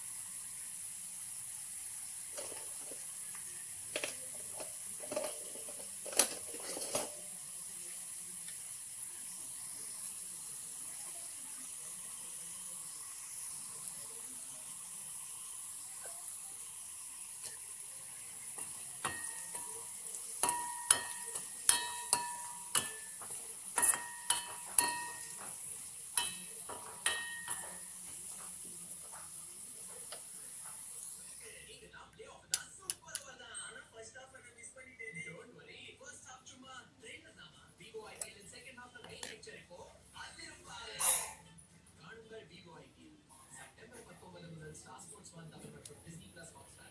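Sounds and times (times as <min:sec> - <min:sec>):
oil and onion sizzling: 0:00.0 - 0:31.7
spoon knocking metal pan: 0:18.6 - 0:28.5.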